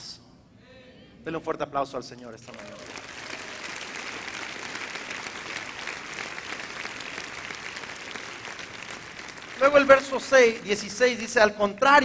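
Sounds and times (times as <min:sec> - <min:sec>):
crowd applauding: 0:02.4 - 0:11.2.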